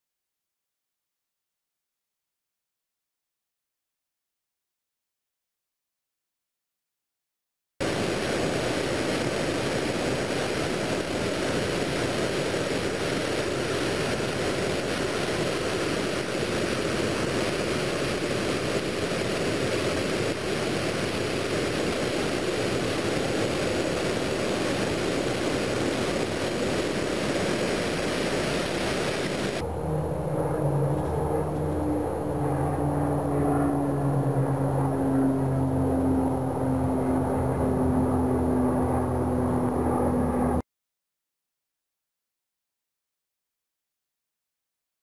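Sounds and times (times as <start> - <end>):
creek rushing over rocks: 20.3 - 29.6.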